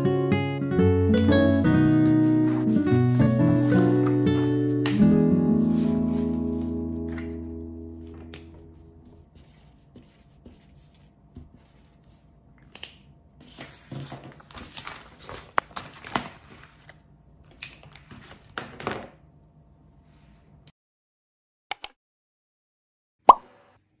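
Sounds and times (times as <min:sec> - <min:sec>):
paper sheets rustling: 0:01.4 - 0:18.9.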